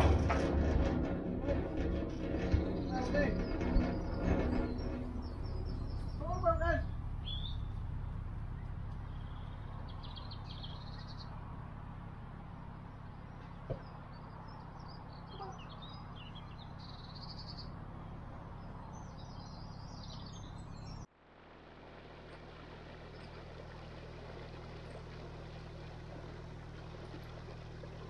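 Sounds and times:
boat engine idling hum: 0:00.0 - 0:28.0
songbirds chirping and singing: 0:01.5 - 0:11.4, 0:12.7 - 0:21.1.

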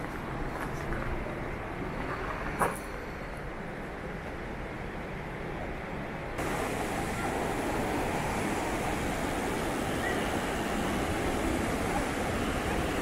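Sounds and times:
waterfall roaring: 0:06.4 - 0:13.0
white-water river rushing: 0:06.4 - 0:13.0.

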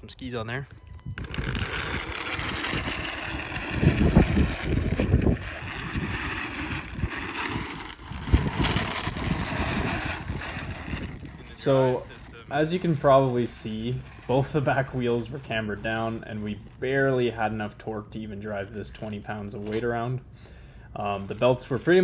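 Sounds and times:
cart wheels rolling on asphalt: 0:00.6 - 0:20.1, 0:20.9 - 0:22.0
wind on microphone: 0:00.7 - 0:14.3
electric motor whine: 0:00.7 - 0:16.6.

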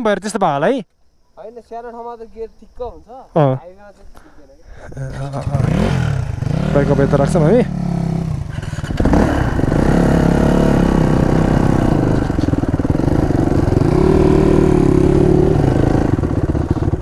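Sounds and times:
dirt bike engine running: 0:05.0 - 0:17.0.

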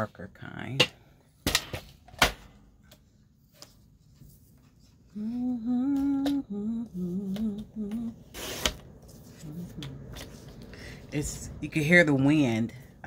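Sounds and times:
woman humming a slow tune: 0:05.1 - 0:08.3, 0:09.4 - 0:10.1.

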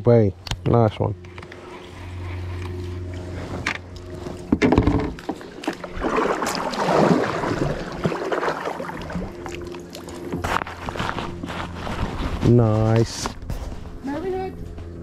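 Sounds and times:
low hum: 0:00.0 - 0:15.0
water splashing around kayaks: 0:01.5 - 0:12.6.

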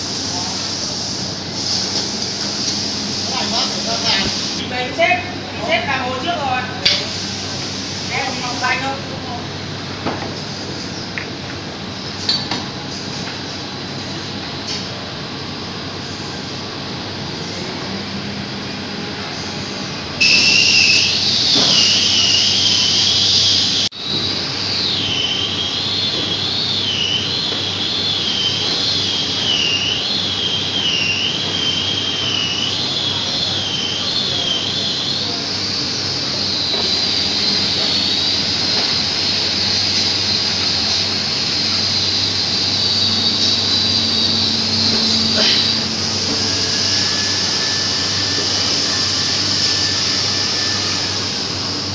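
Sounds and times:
machine high whine: 0:00.0 - 0:51.9
mechanical drone: 0:30.4 - 0:51.9.

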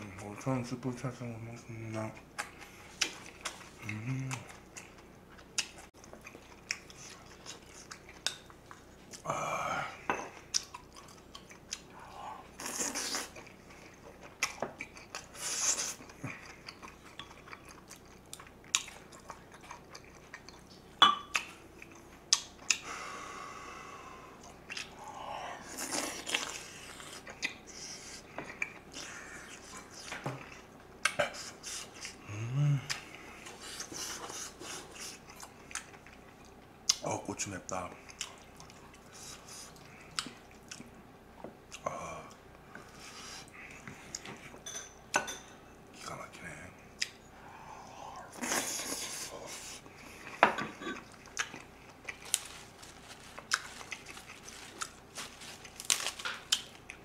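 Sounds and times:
chewing: 0:02.0 - 0:09.2, 0:10.3 - 0:22.8, 0:24.4 - 0:25.0, 0:25.6 - 0:37.0, 0:38.0 - 0:41.0, 0:48.4 - 0:57.0.

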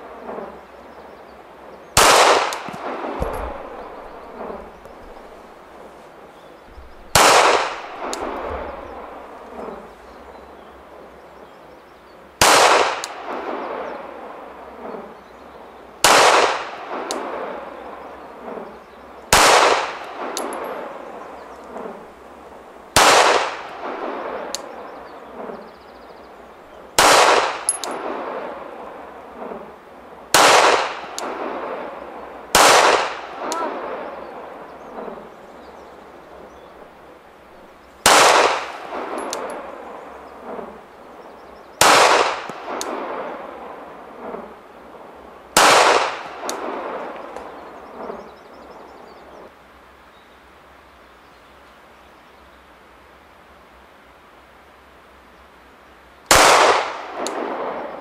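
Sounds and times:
pistol shots with echo: 0:02.0 - 0:05.4, 0:06.7 - 0:09.3, 0:12.4 - 0:13.6, 0:16.0 - 0:17.3, 0:19.3 - 0:20.9, 0:23.0 - 0:24.4, 0:27.0 - 0:28.1, 0:30.4 - 0:31.6, 0:32.6 - 0:34.0, 0:38.0 - 0:39.6, 0:41.8 - 0:43.2, 0:45.6 - 0:47.0, 0:56.3 - 0:57.7.

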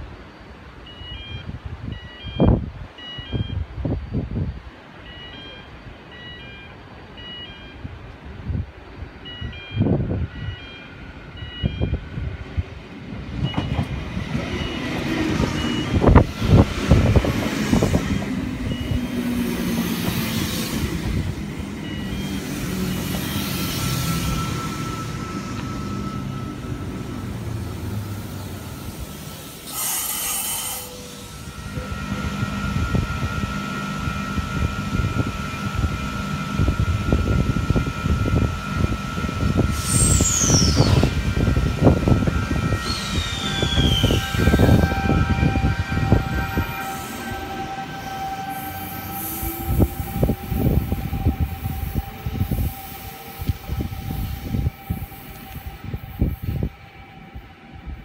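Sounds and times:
short electronic beep: 0:00.8 - 0:04.2, 0:05.0 - 0:07.9, 0:09.2 - 0:12.0, 0:18.6 - 0:19.2
train rumbling past: 0:01.6 - 0:58.0
train brakes squealing: 0:13.4 - 0:57.8.

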